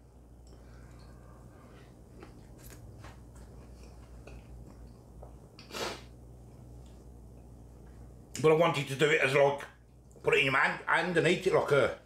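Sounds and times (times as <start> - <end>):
man chewing food: 0.0 - 8.4.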